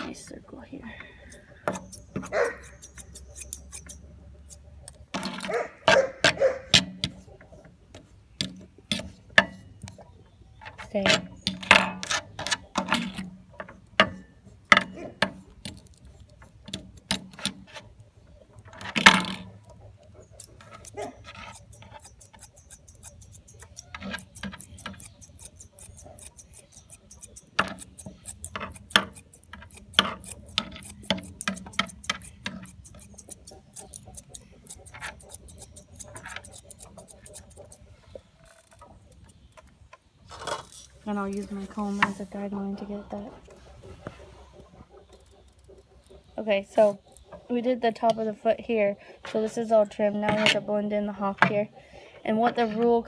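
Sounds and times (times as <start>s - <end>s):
scissors snipping hair: 1.9s - 4.6s, 20.4s - 37.8s.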